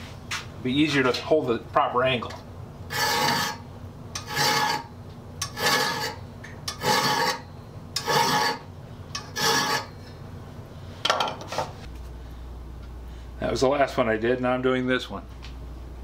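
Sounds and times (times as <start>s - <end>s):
file stroking across saw teeth: 2.9s - 3.6s, 4.2s - 6.2s, 6.8s - 7.4s, 8.0s - 9.9s.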